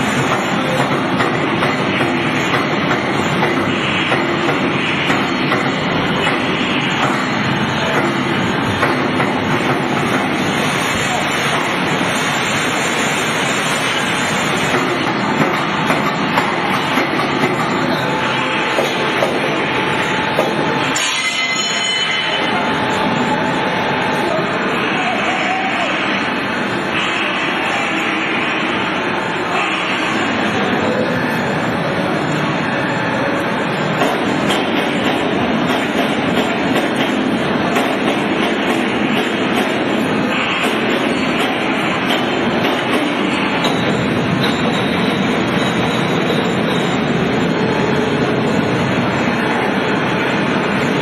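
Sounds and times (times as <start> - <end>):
factory machinery noise: 0.0 - 51.0.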